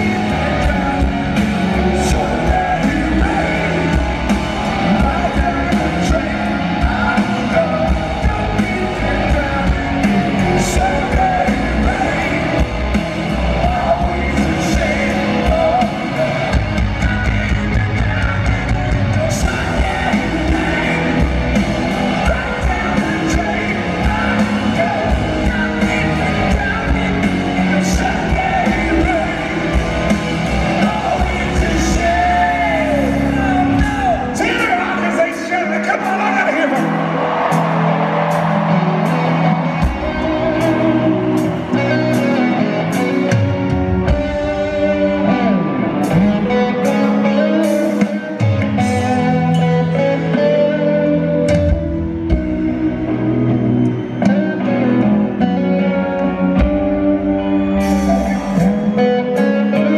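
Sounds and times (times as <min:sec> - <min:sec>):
man singing lead vocal: 0:00.0 - 0:38.2, 0:58.0 - 0:59.9
live rock band playing: 0:00.0 - 0:59.9.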